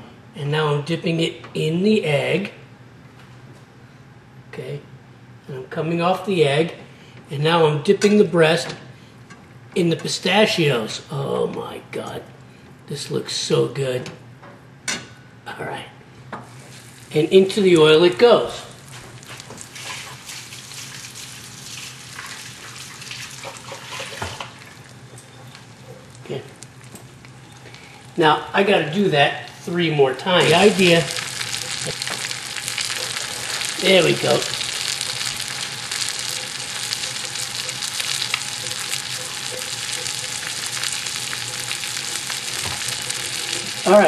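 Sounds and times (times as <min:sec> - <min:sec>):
chicken sizzling in hot oil: 0:18.8 - 0:28.2, 0:30.4 - 0:44.0.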